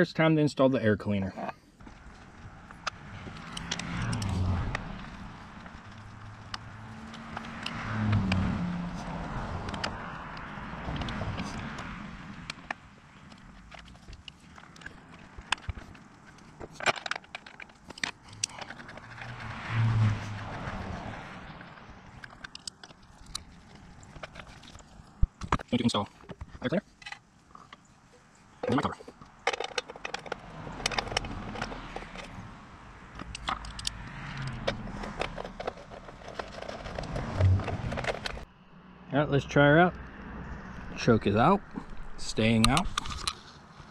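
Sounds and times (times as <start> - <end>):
metallic clicks and clinks: 28.6 - 32.4, 33.1 - 38.4.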